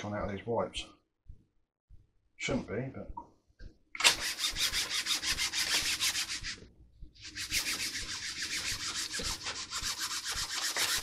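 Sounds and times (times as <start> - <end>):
wipe rubbing on model wing: 7.2 - 11.0.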